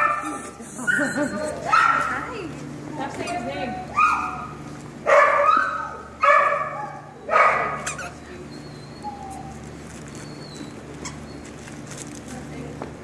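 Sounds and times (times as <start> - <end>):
puppy barking: 0.0 - 2.4, 3.9 - 8.2.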